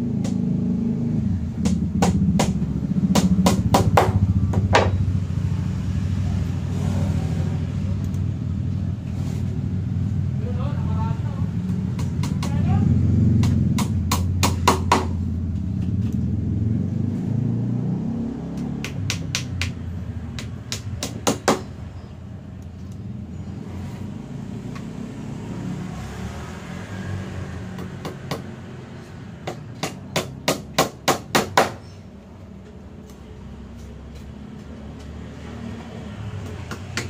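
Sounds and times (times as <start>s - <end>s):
low motor rumble: 0.0s - 25.6s.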